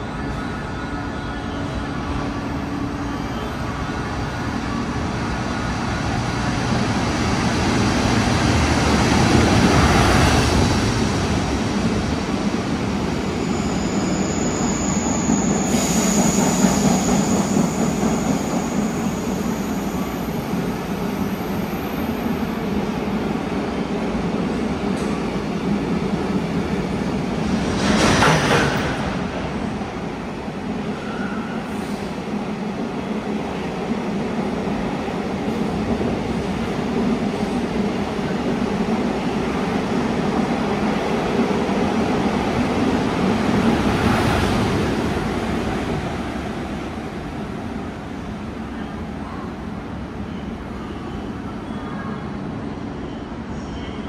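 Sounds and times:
freight train rumbling: 0.0 - 54.0
high wheel squeal: 13.2 - 20.8.

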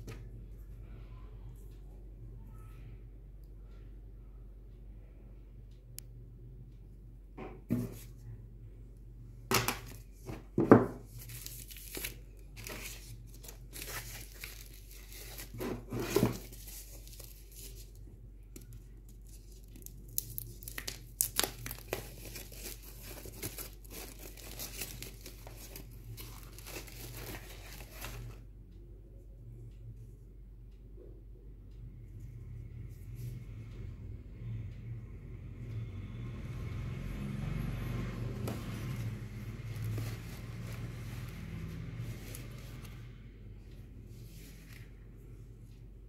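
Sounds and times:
plastic packaging crinkling: 11.0 - 18.0, 19.2 - 28.4.

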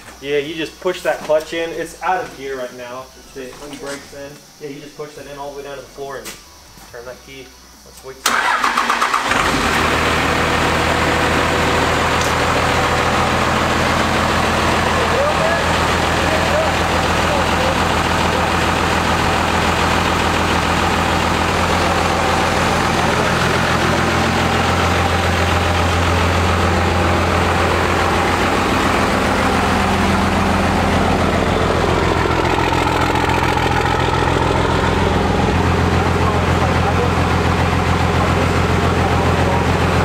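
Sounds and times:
diesel truck engine idling: 8.3 - 40.0.

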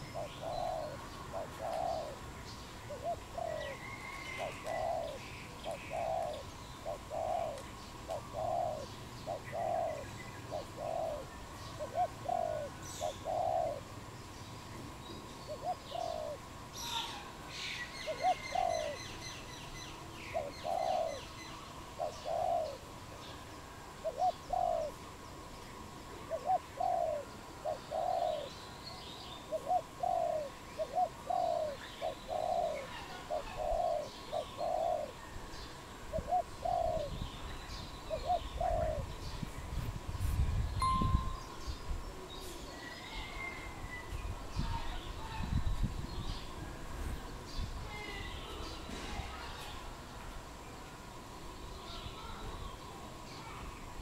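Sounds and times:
dove cooing: 0.0 - 14.0, 15.5 - 17.3, 18.0 - 19.3, 20.3 - 22.9, 23.8 - 25.1, 26.1 - 28.5, 29.4 - 35.3, 36.0 - 37.3, 38.1 - 39.2.

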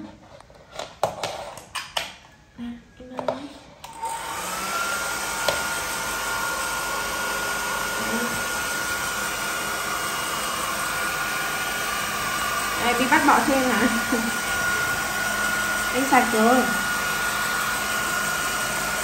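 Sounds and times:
hair dryer blowing: 3.8 - 19.0.

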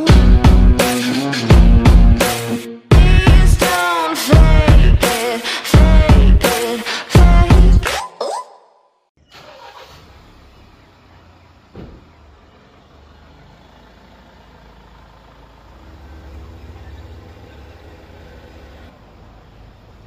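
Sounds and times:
engine rumbling: 9.2 - 20.0.

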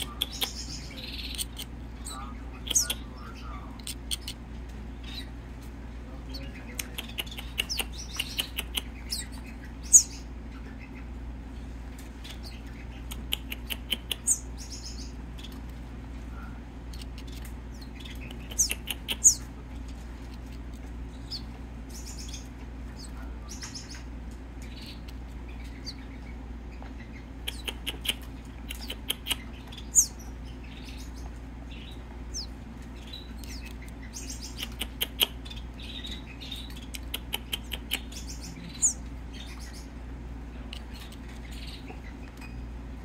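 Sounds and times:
bird nestling cheeping: 16.9 - 40.0.

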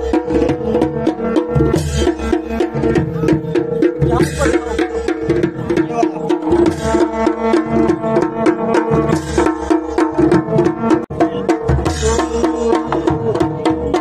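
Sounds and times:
drums in a fast rhythm: 0.0 - 14.0.

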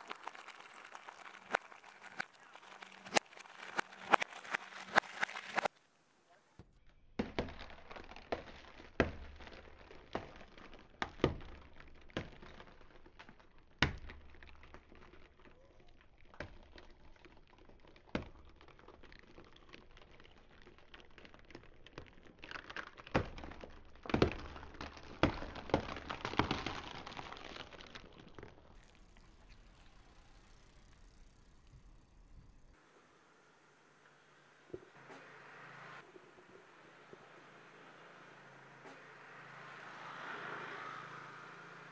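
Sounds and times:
cardboard egg tray crumpling: 0.0 - 5.8, 17.0 - 28.9
egg shells cracking: 0.0 - 5.8, 7.2 - 29.9.

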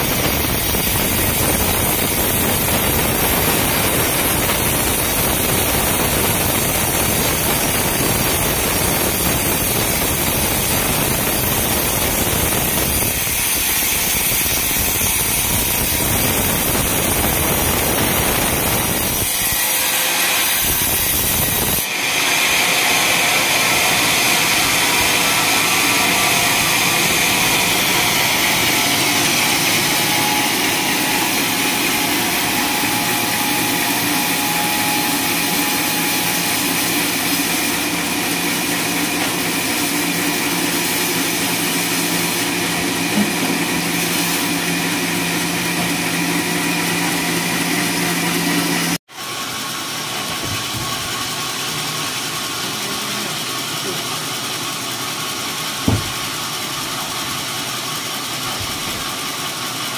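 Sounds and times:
band saw cutting log: 0.0 - 59.9.

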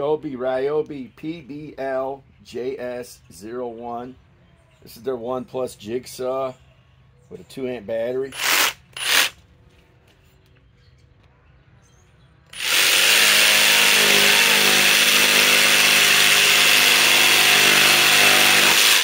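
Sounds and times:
jigsaw cutting wooden board: 8.4 - 9.3, 12.6 - 19.0.

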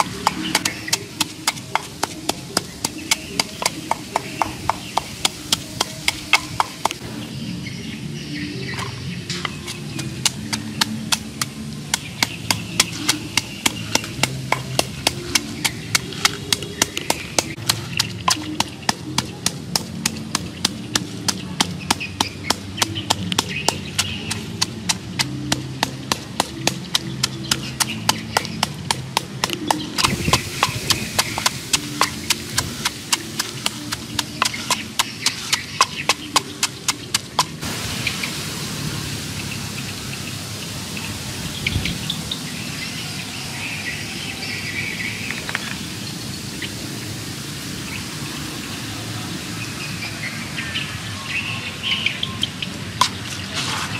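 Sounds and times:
wooden pestle pounding in mortar: 0.0 - 7.0, 9.4 - 37.7.

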